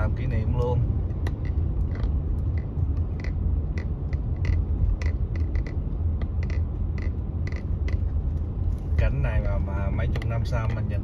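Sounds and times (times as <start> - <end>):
car cabin road rumble: 0.0 - 11.0
clicking rattles: 1.1 - 8.1.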